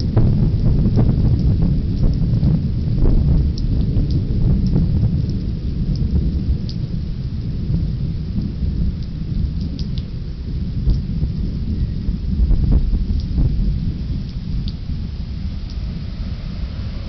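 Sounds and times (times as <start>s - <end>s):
raindrops ticking: 0.0s - 17.0s
thunder rumbling: 0.0s - 17.0s.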